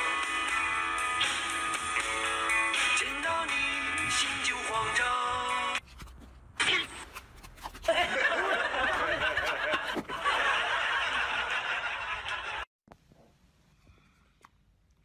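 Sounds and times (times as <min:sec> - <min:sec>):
people laughing together: 0:07.8 - 0:12.7.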